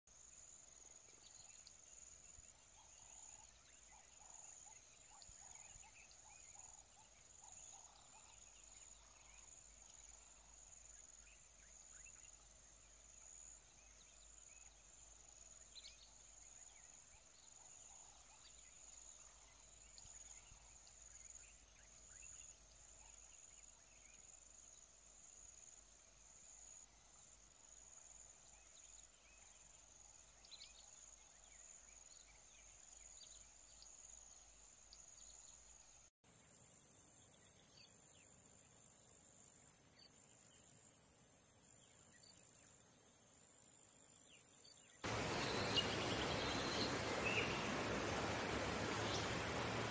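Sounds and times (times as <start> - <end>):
faint chirps: 36.8 - 49.9.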